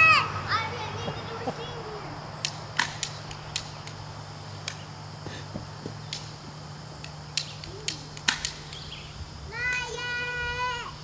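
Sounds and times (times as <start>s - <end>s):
steady low hum: 0.0s - 11.0s
sharp clicks and ticks: 2.4s - 4.0s, 7.0s - 8.9s.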